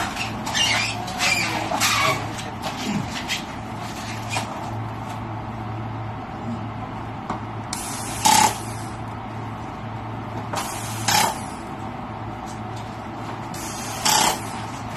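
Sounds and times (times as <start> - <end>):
steady low hum: 0.0 - 14.9
air tool hissing bursts: 7.8 - 8.9, 10.6 - 11.5, 13.5 - 14.5.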